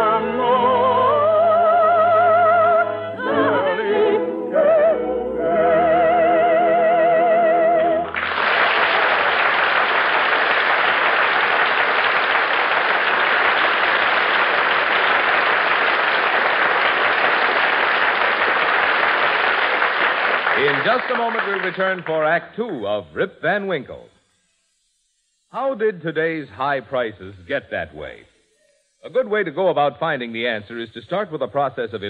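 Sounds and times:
operatic singing: 0.0 - 8.1
audience applause: 8.1 - 22.4.

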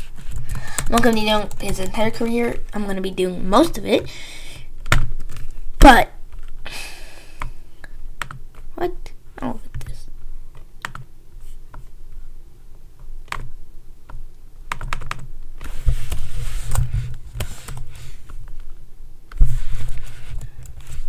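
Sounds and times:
computer keyboard typing: 0.2 - 2.3, 8.2 - 8.4, 10.8 - 11.1, 14.1 - 15.3.

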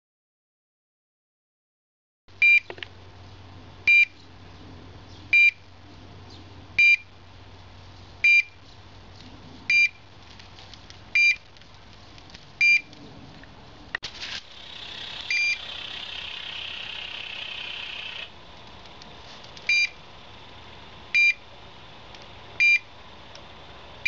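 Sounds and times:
faint steady hum: 2.3 - 24.0
short high electronic beeps: 14.7 - 18.3.

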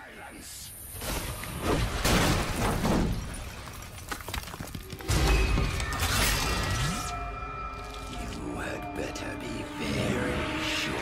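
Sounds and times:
debris breaking: 1.7 - 6.6
background music: 5.1 - 11.0.

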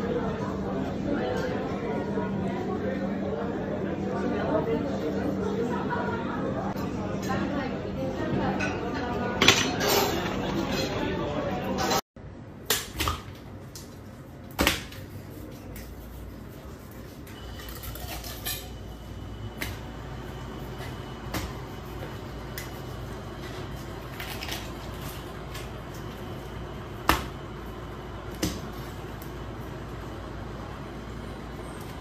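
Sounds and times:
steady low hum: 13.4 - 32.0.

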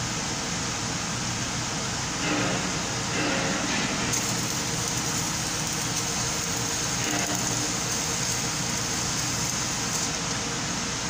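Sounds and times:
welding arc crackling and hissing: 2.2 - 11.0.

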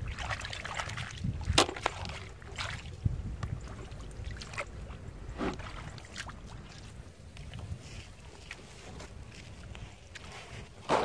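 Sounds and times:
hands splashing in muddy water: 0.0 - 3.1.

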